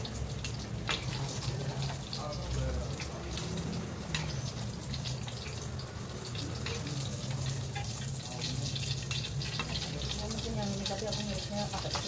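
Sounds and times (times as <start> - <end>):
tofu sizzling in hot oil: 0.0 - 12.0
metal utensils clicking on strainer: 6.3 - 12.0.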